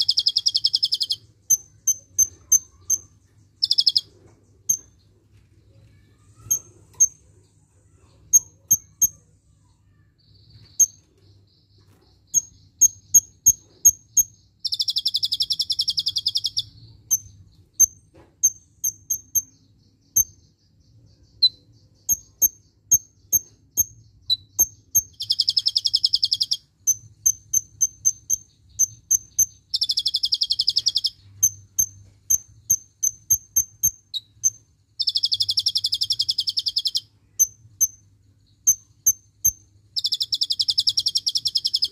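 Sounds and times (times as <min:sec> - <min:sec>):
bird rattling trill: 0:00.0 - 0:04.9, 0:11.8 - 0:20.4, 0:21.4 - 0:38.0, 0:38.6 - 0:41.9
bird chirping: 0:00.0 - 0:41.9.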